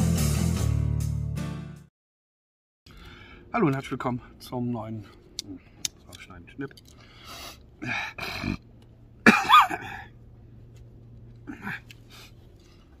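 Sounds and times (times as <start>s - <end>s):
man coughing: 9.2s - 10.1s, 11.4s - 11.9s.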